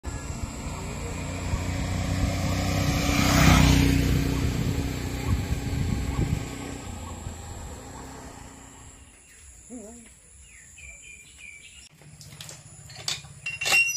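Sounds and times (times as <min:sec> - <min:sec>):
vehicle engine passing by: 0:00.1 - 0:09.2.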